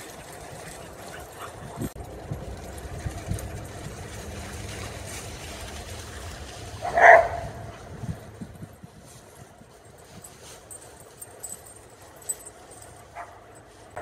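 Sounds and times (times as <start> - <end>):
dog barking: 6.8 - 7.5, 13.1 - 13.5.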